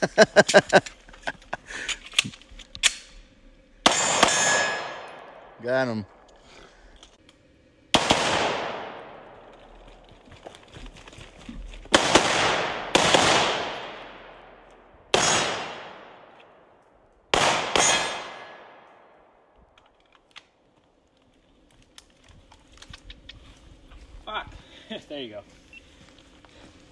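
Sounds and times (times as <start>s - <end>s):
gunshots with long echo: 3.8s - 6.2s, 7.9s - 9.5s, 11.9s - 19.5s.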